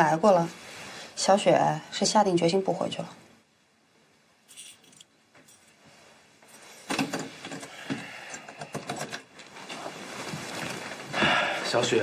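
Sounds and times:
small clicks and rustling: 6.4s - 11.1s.

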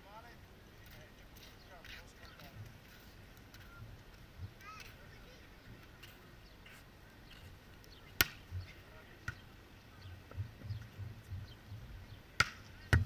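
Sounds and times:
volleyball hit by hand: 8.2s - 8.4s, 12.4s - 13.0s.

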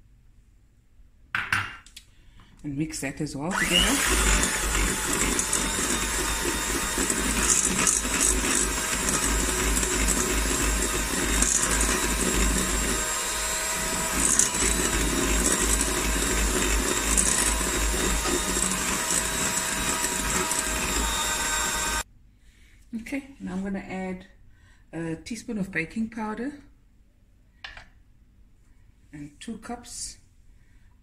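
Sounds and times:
electric hand mixer whisking: 3.5s - 22.0s.

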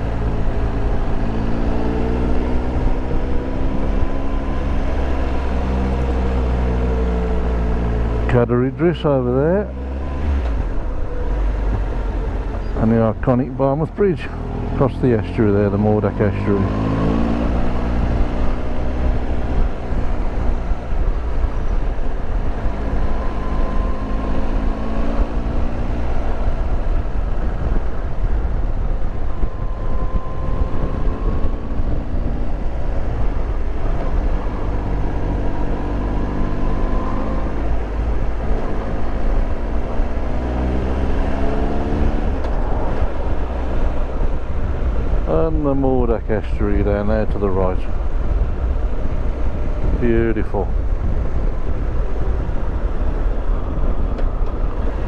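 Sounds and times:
motorcycle engine revving: 9.3s - 45.5s.

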